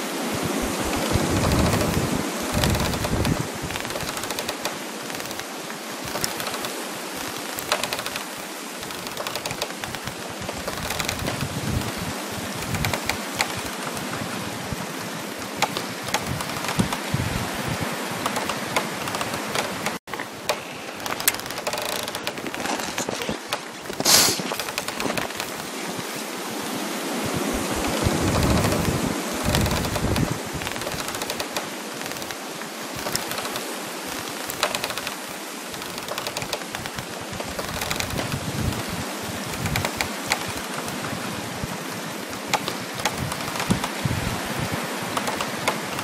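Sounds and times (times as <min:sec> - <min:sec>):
wind rushing: 0:00.0 - 0:08.7, 0:09.3 - 0:31.2
trees rustling: 0:00.0 - 0:46.0
dense crackling: 0:00.6 - 0:25.8, 0:27.6 - 0:41.5, 0:42.2 - 0:46.0.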